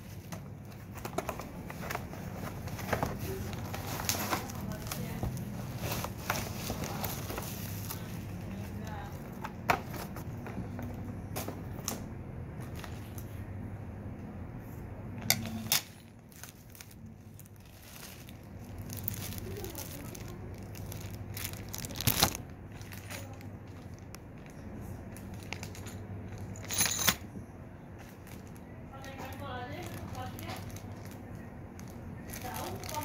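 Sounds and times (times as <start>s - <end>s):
plastic packaging crinkling: 0.0s - 10.5s, 15.7s - 26.6s, 28.0s - 33.0s
steady low hum: 0.0s - 33.0s.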